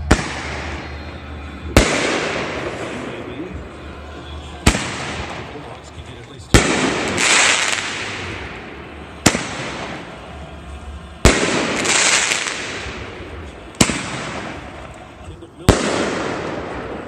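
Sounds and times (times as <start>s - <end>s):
firework bangs: 0.0s - 3.6s, 4.4s - 17.0s
firework hiss: 6.5s - 17.0s.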